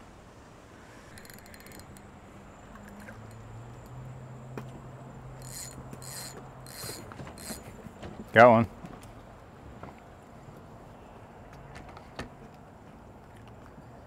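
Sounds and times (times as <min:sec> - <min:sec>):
fishing reel clicking: 0:01.1 - 0:02.1, 0:02.8 - 0:03.4, 0:05.4 - 0:07.6.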